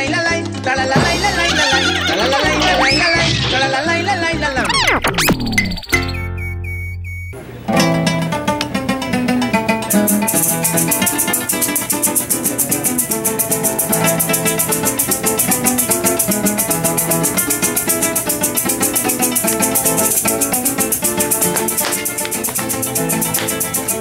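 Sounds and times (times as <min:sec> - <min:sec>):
cuatros strummed: 0:00.4 - 0:06.8, 0:07.4 - 0:24.0
maracas shaken: 0:09.8 - 0:24.0.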